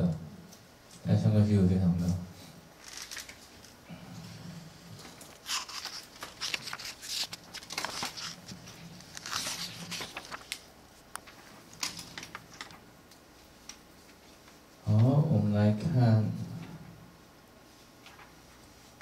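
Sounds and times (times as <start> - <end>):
book pages turning: 2.8 - 3.8, 5.1 - 12.9.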